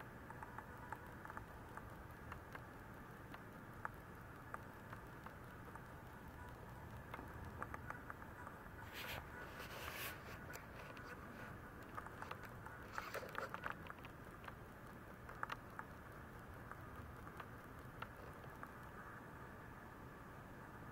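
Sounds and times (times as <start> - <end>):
low steady hiss: 0.0 - 20.9
soft clicks: 0.1 - 19.2
faint rustles: 4.2 - 19.2.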